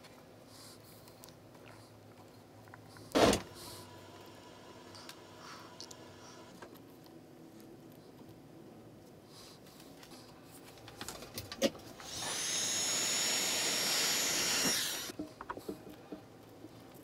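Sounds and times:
heat gun blowing air with whine: 0:12.0 - 0:15.1.

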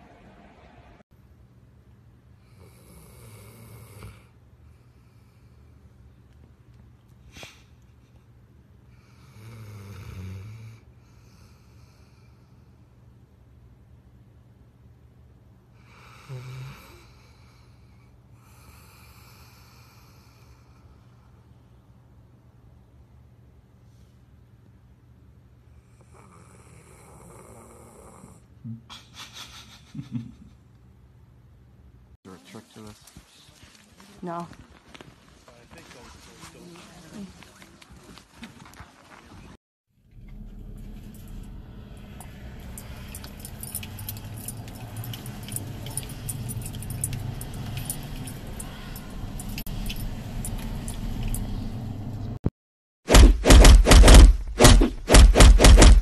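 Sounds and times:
dog snoring: 0:02.4 - 0:04.4, 0:09.0 - 0:12.3, 0:15.8 - 0:17.7, 0:25.8 - 0:28.5
dog collar jingling: 0:42.2 - 0:51.5.

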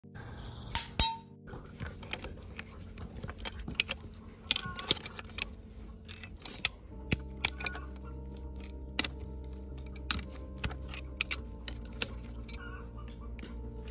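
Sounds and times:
metal tool clinking on horseshoe: 0:02.1 - 0:12.6.

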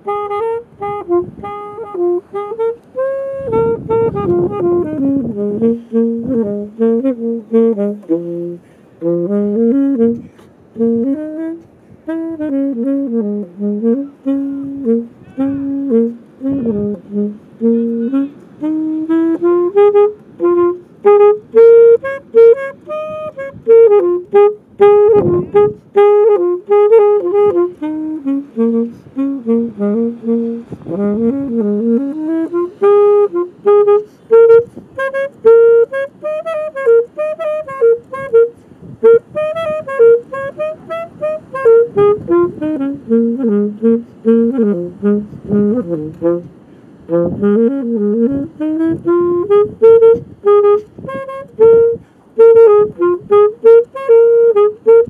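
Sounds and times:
jazzy wind instrument melody: 0:00.0 - 0:55.0.

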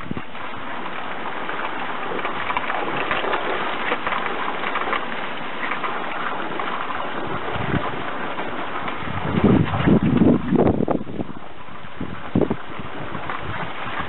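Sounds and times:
water jet spraying and splashing: 0:00.0 - 0:14.0.

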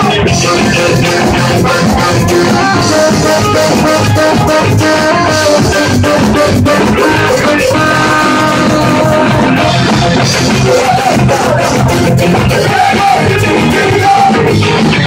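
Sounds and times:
drum kit: 0:00.0 - 0:15.0
electric guitar: 0:00.0 - 0:15.0
saxophone melody: 0:00.2 - 0:10.9.

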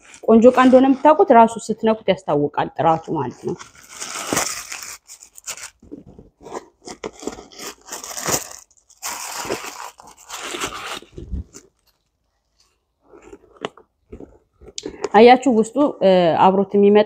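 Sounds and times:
tissue paper crinkling: 0:00.0 - 0:01.3, 0:03.2 - 0:13.8.

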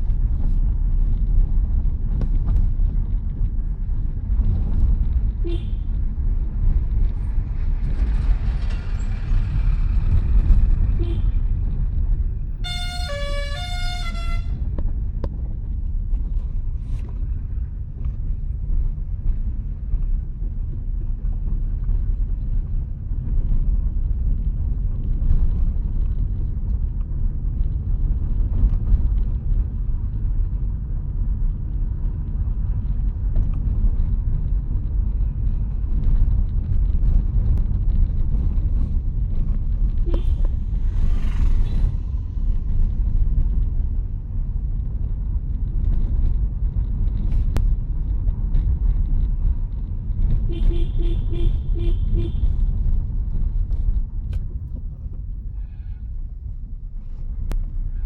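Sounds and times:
car engine and road noise: 0:00.0 - 0:58.0
musical vehicle horn: 0:05.4 - 0:05.9, 0:11.0 - 0:11.4, 0:12.5 - 0:14.7, 0:40.0 - 0:40.8, 0:50.5 - 0:52.6
truck passing: 0:40.2 - 0:43.2.

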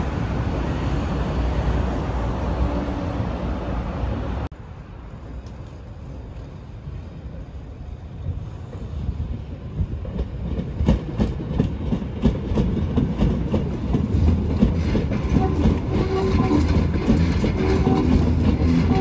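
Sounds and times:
subway train rumble: 0:00.0 - 0:19.0
wheels clattering over rail joints: 0:09.6 - 0:19.0.

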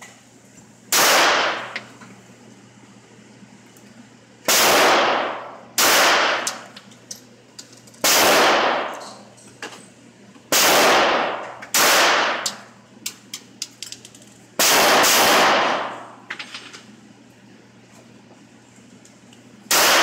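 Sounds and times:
pistol shots echoing indoors: 0:00.9 - 0:01.8, 0:04.5 - 0:06.7, 0:08.0 - 0:09.0, 0:10.5 - 0:12.7, 0:14.6 - 0:16.2, 0:19.7 - 0:20.0.

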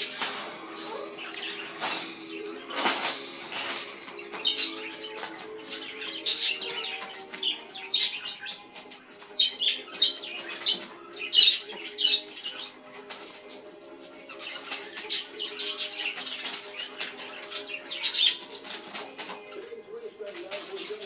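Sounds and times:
bird rustling on newspaper: 0:12.2 - 0:21.0.

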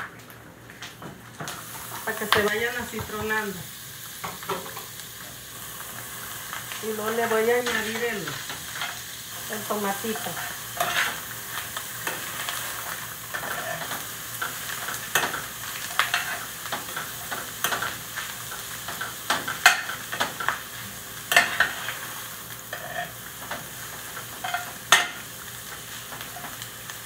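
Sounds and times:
meat sizzling in a pan: 0:01.4 - 0:27.0
utensil scraping a pan: 0:10.1 - 0:11.2.

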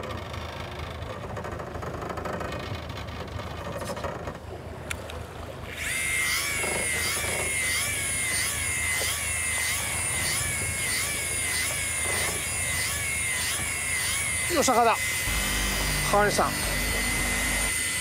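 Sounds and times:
electric fishing reel motor whine: 0:05.6 - 0:18.0.

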